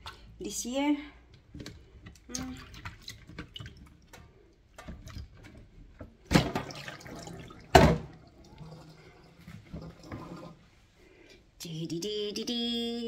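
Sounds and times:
water dripping and sloshing: 1.3 - 10.8.

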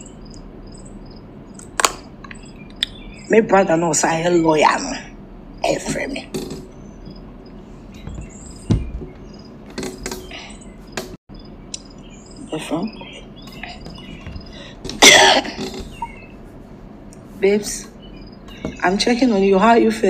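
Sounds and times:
faint bird chirps: 2.3 - 3.4, 6.6 - 14.8, 15.6 - 16.4, 17.7 - 19.4.

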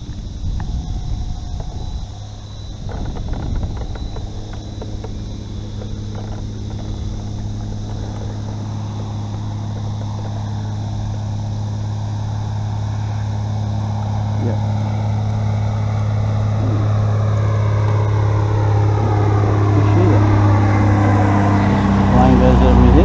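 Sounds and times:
electric trolling motor humming: 0.0 - 23.0.

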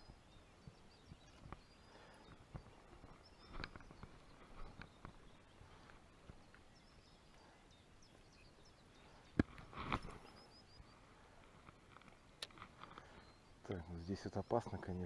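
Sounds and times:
fishing rod knock and rustle: 9.3 - 10.3, 11.6 - 13.1.

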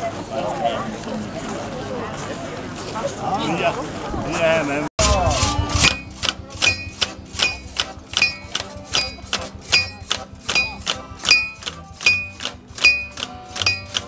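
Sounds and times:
hammers peening scythe blades on anvils: 5.0 - 14.0.

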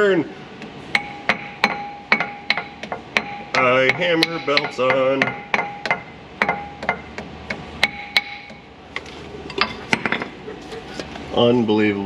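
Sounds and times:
hammer strikes with metallic ring: 0.9 - 7.1.

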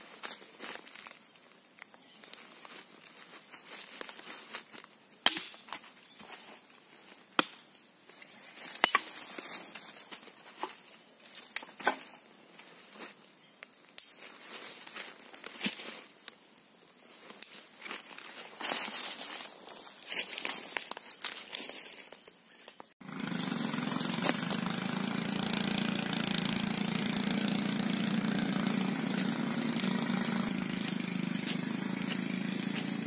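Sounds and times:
high insect drone: 0.0 - 33.0
hatchet chopping branches: 5.2 - 5.9, 7.4 - 7.7, 8.6 - 9.6, 23.1 - 33.0.

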